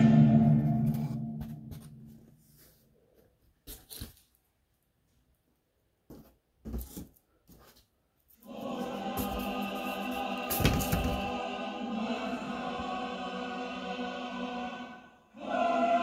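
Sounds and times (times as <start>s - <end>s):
music with choir: 0.0s - 1.9s, 8.4s - 16.0s
music: 0.0s - 2.2s, 8.5s - 16.0s.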